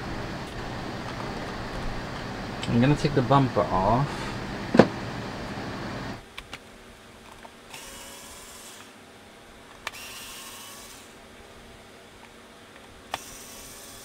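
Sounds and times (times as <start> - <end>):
electric screwdriver running: 7.7 - 8.9, 9.9 - 11.1, 13.1 - 14.0.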